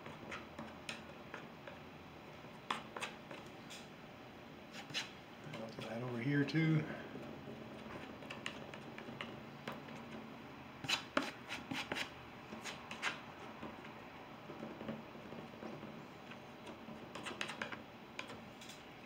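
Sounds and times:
palette knife scraping paint: 0:00.0 - 0:01.8, 0:04.7 - 0:05.9, 0:10.8 - 0:13.2
palette knife dabbing canvas: 0:04.7 - 0:05.2, 0:10.8 - 0:13.2.

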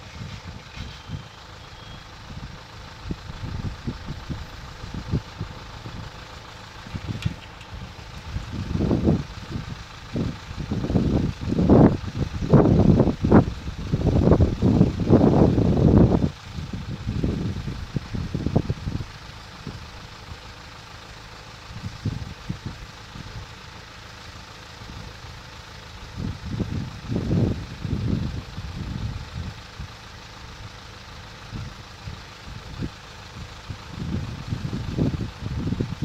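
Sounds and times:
road vehicles idling: 0:00.0 - 0:36.0
wind buffeting microphone: 0:06.8 - 0:19.9, 0:26.1 - 0:29.9, 0:32.6 - 0:36.0.

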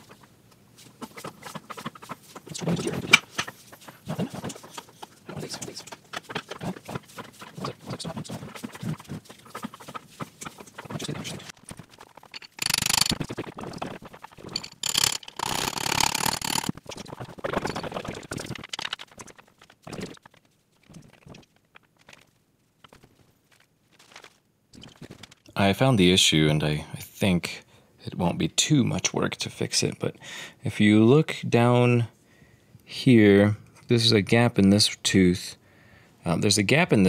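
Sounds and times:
cordless power tool bursts: 0:14.8 - 0:16.7.

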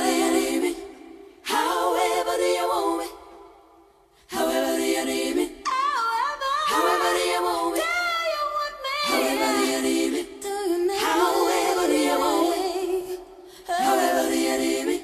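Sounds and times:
voices singing in harmony: 0:00.0 - 0:15.0
singers breathing: 0:13.3 - 0:13.7.

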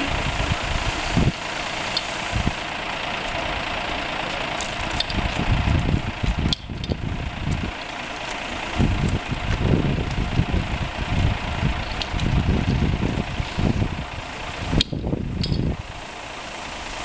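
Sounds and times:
wind buffeting microphone: 0:00.0 - 0:01.5, 0:02.3 - 0:02.6, 0:04.8 - 0:07.8, 0:08.6 - 0:16.0
fire pump engine running: 0:00.0 - 0:17.0.

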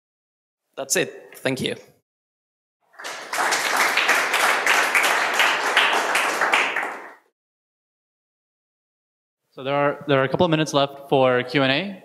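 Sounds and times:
audience applauding: 0:02.9 - 0:07.3.

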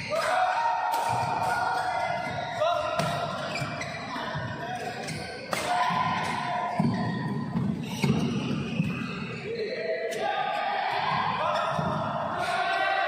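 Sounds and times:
shoes squeaking on court: 0:01.8 - 0:05.6, 0:06.2 - 0:09.8
racket striking shuttlecock: 0:05.5 - 0:06.4.

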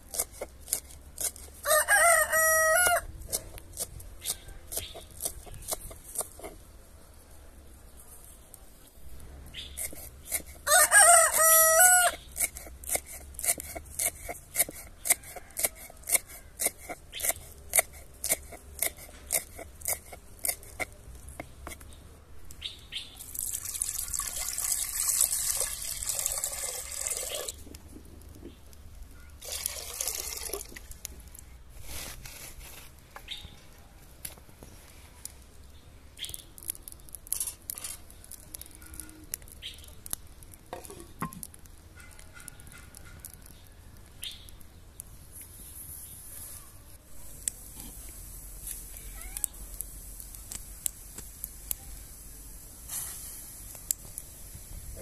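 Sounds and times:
rooster crowing: 0:01.6 - 0:03.1, 0:10.6 - 0:12.2
knife chopping herbs on board: 0:12.4 - 0:21.8
water pouring into pot: 0:23.2 - 0:27.6, 0:29.4 - 0:30.8.

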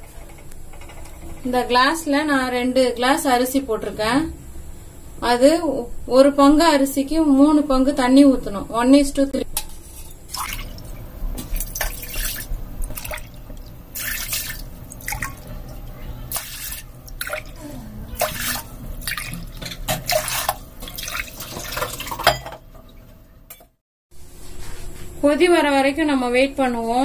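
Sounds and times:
water pouring and splashing: 0:10.3 - 0:23.0.

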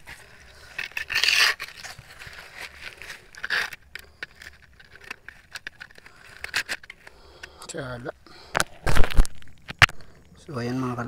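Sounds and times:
rustling and scraping grass and soil: 0:00.0 - 0:07.0.

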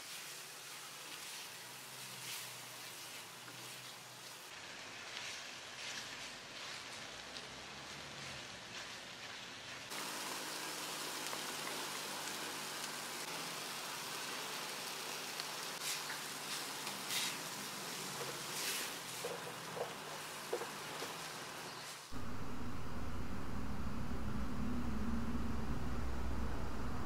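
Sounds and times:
food sizzling in a pan: 0:00.0 - 0:06.0, 0:08.7 - 0:22.2.

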